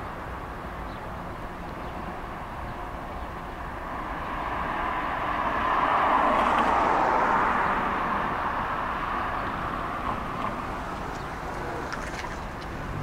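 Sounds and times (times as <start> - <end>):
diesel locomotives passing: 0.4 - 13.0.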